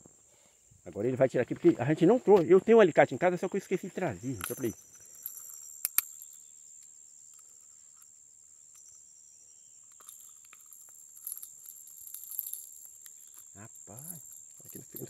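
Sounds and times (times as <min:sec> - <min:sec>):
small clicks and crunching: 0:04.3 - 0:08.1, 0:09.8 - 0:15.0
sharp metallic click of pliers: 0:05.8 - 0:06.3.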